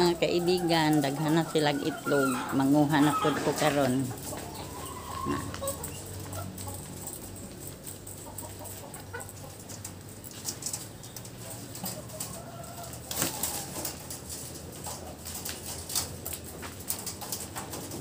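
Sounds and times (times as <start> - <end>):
hens clucking: 0.0 - 18.0
rustling and clicks: 3.5 - 18.0.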